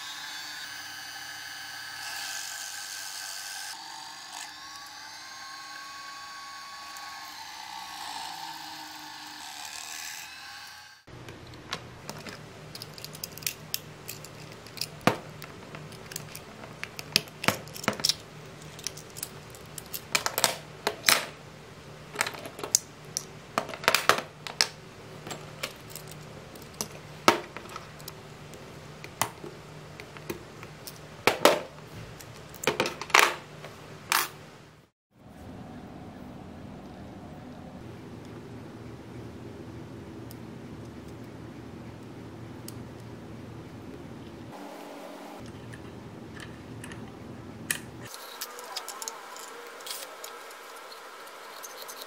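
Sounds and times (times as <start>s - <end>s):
small metal and plastic parts clicking: 11.4s - 21.2s, 47.7s - 52.0s.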